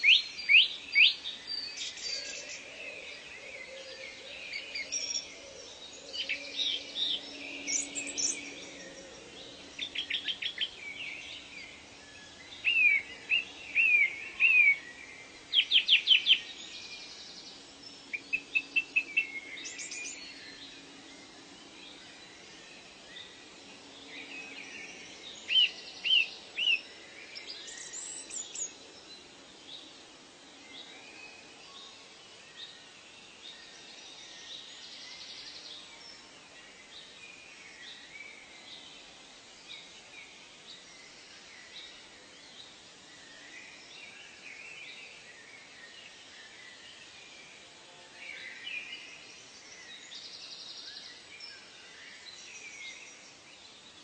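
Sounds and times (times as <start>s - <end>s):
birds calling and chirping: 0.0s - 29.2s
faint steady hiss: 0.0s - 54.0s.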